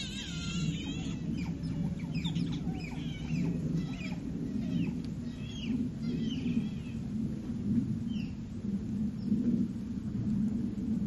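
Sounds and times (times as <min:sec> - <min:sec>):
otters chirping and squeaking: 0:00.0 - 0:07.0
low hum: 0:00.0 - 0:11.0.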